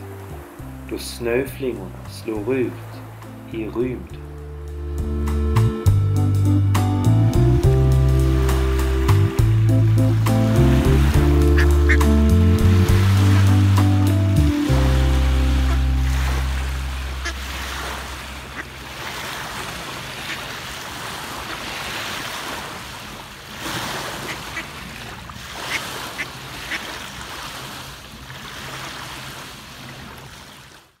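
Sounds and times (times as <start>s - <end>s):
small waves breaking on sand: 8.1s - 31.0s
ducks calling: 9.4s - 14.4s, 15.4s - 21.7s, 24.1s - 25.0s, 25.6s - 27.0s.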